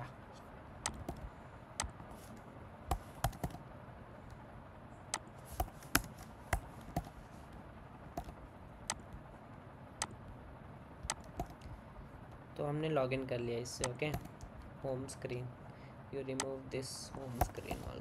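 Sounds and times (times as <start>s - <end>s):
computer keyboard keystrokes: 2.9s - 3.6s, 11.0s - 11.6s.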